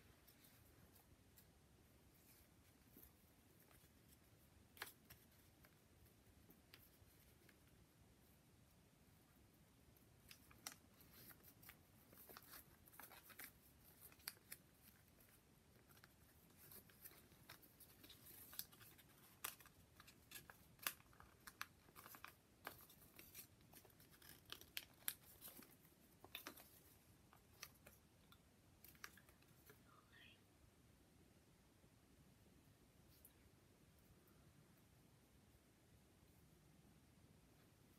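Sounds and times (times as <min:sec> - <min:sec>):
paper rustling and clicking: 0:10.2 - 0:28.0.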